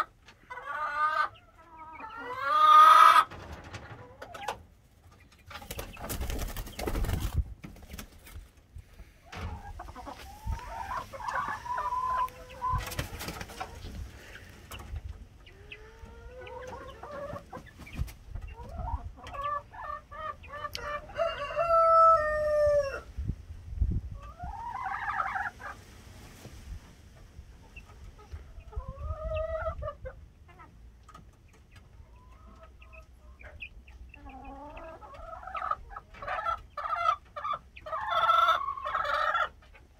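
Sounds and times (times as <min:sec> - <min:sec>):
chickens calling and clucking: 0:00.0 - 0:39.9
chick flapping wings: 0:03.1 - 0:08.6, 0:12.2 - 0:14.1, 0:16.6 - 0:18.5
long drawn-out rooster call: 0:20.8 - 0:23.1.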